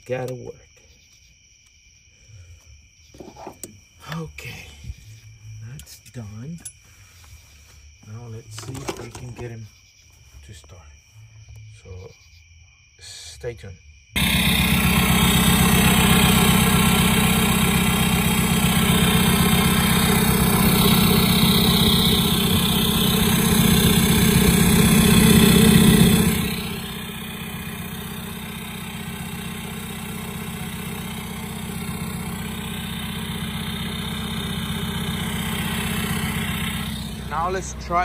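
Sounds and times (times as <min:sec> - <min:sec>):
diesel engine idling: 0:14.2 - 0:38.0.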